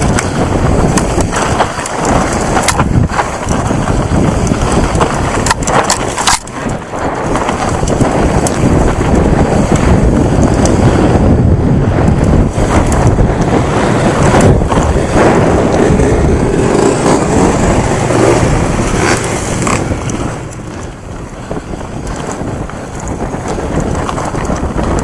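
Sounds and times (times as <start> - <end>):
bike knocking and rattling: 0.0 - 25.0
bike tyres rumbling over dirt: 0.0 - 25.0
wind buffeting microphone: 0.0 - 25.0.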